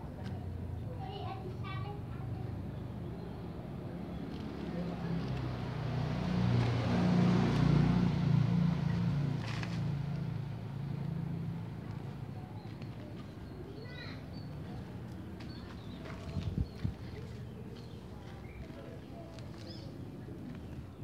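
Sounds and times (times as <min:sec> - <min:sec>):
vehicle engine hum: 0:02.0 - 0:13.8.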